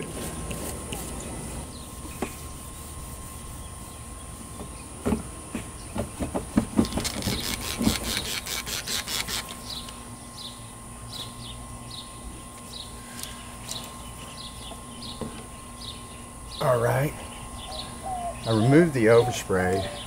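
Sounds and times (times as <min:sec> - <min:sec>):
bird chirping: 0:13.7 - 0:20.0.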